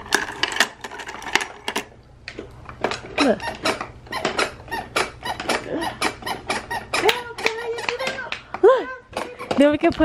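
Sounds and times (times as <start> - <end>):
plastic toys clicking and rattling: 0.0 - 1.9, 2.7 - 10.0.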